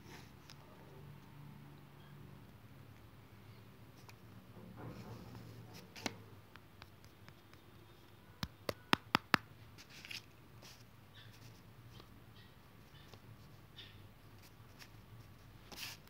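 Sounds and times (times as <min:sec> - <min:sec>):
quick sharp taps: 0:08.4 - 0:09.5.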